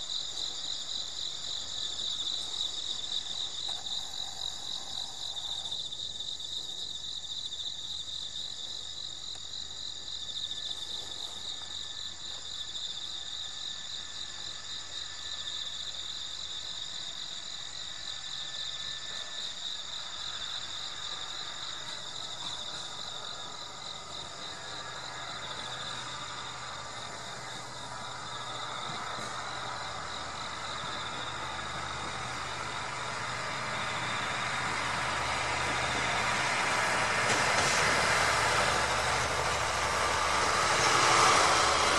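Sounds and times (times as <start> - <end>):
crickets chirping: 0.0 - 41.9
train running: 0.0 - 41.9.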